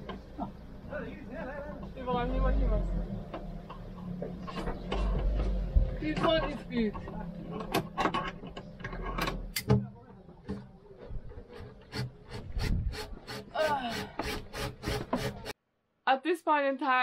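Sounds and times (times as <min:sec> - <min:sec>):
tools handled with clicks and knocks: 0:03.3 - 0:11.9.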